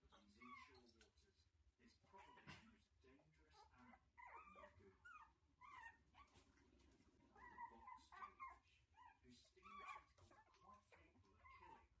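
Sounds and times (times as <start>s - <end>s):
puppies whining and yipping: 4.2s - 6.4s, 7.4s - 10.5s.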